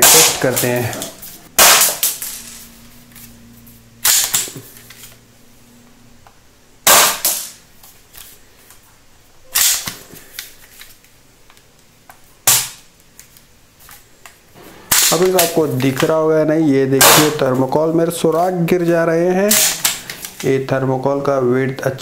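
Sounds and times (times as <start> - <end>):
toy rifle sharp cracks: 0.0 - 0.7, 1.6 - 2.4, 4.0 - 4.7, 6.8 - 7.6, 9.5 - 10.0, 12.4 - 12.9, 14.9 - 15.6, 17.0 - 17.4, 19.5 - 20.4.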